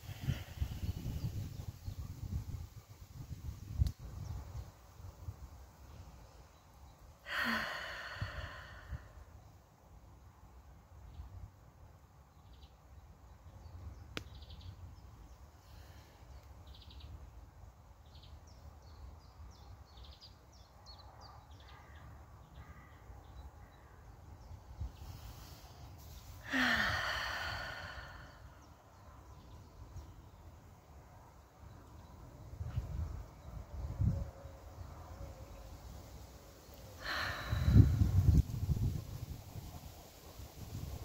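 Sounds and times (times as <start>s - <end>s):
woman sighing: 7.2s - 9.1s, 26.4s - 28.7s, 37.0s - 38.0s.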